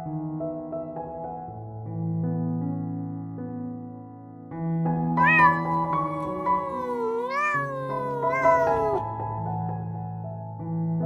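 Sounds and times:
soft piano music: 0:00.0 - 0:11.0
cat meowing: 0:05.2 - 0:09.1.

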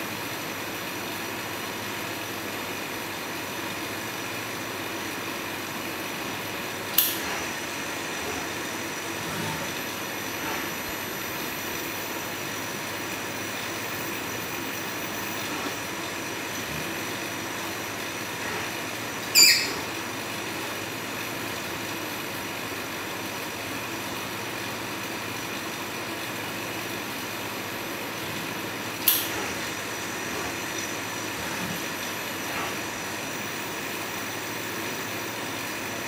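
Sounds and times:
robot mechanical hum: 0:07.0 - 0:20.0.

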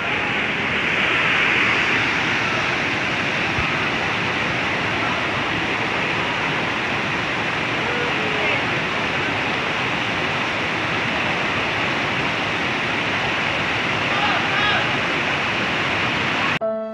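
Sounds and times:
whitewater rapids rushing: 0:00.0 - 0:16.6.

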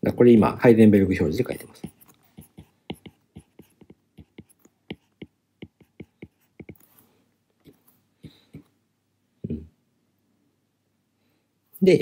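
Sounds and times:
stylus tapping on a screen: 0:01.8 - 0:06.8.

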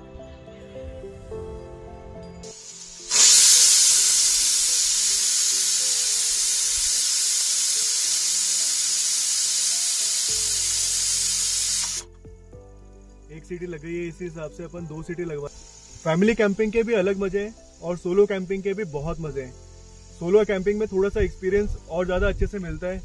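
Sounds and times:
pressure cooker steam hiss: 0:02.4 - 0:12.1, 0:15.3 - 0:23.0.

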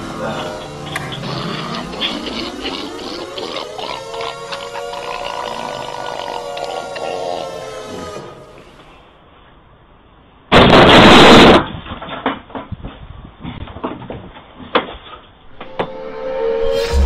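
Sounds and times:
loud burst of noise: 0:10.5 - 0:11.7.

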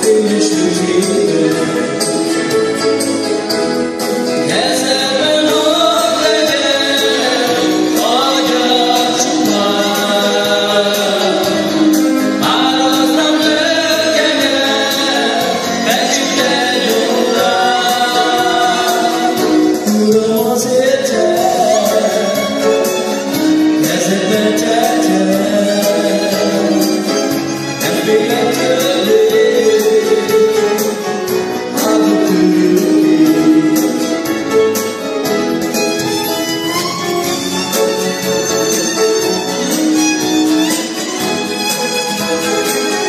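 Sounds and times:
instrumental accompaniment: 0:00.0 - 0:43.0
voices singing gospel song: 0:04.4 - 0:34.5.

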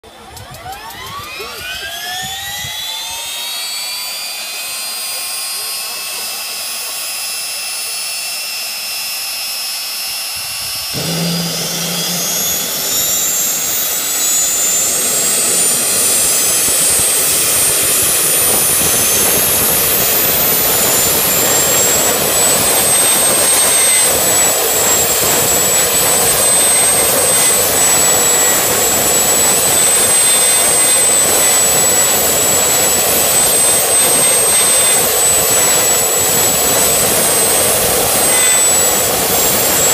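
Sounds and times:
jet engine spooling up: 0:00.0 - 0:39.9.

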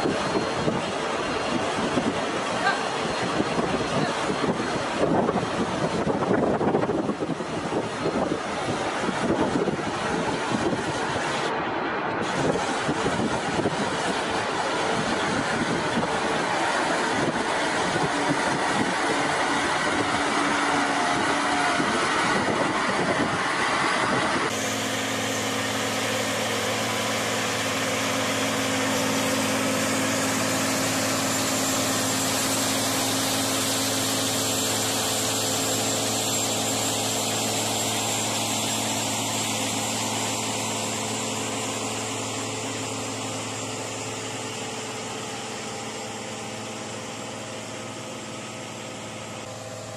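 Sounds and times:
tractor engine droning: 0:00.0 - 0:49.9
tractor engines under load: 0:00.0 - 0:49.9.

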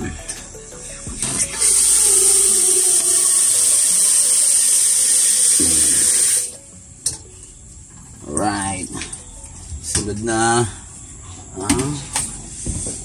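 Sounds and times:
tap water running into sink: 0:01.6 - 0:06.5.

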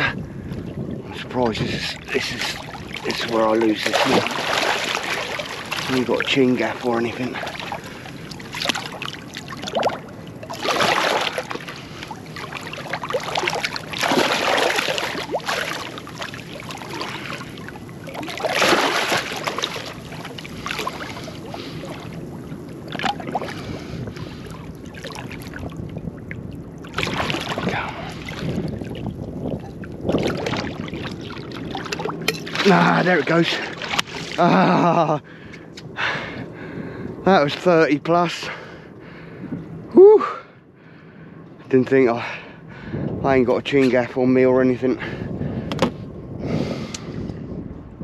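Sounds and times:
water sloshing against hull: 0:00.0 - 0:46.2
eel thrashing and splashing water: 0:01.6 - 0:25.8, 0:26.4 - 0:34.4.

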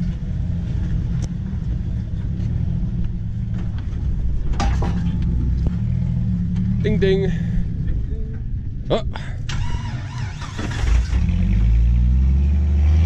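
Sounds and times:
engine running low and steady: 0:00.0 - 0:13.0.

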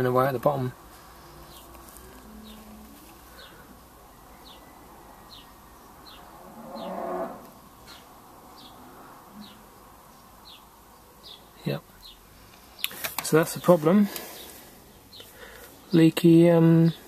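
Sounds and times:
cow mooing: 0:06.3 - 0:07.6.

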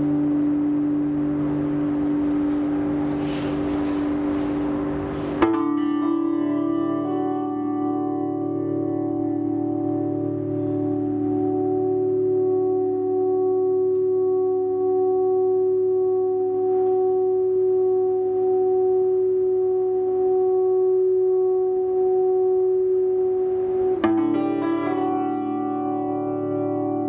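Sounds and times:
guitar chord struck sharply: 0:00.0 - 0:17.4, 0:23.7 - 0:27.0
electric guitar chord droning: 0:00.0 - 0:27.0.

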